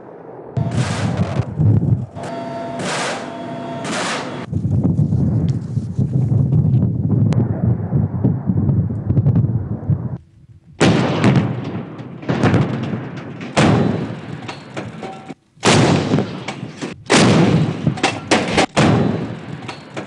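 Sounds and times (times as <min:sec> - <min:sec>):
artillery blasts: 0:00.0 - 0:20.0
helicopter rotor rumble: 0:00.6 - 0:07.2.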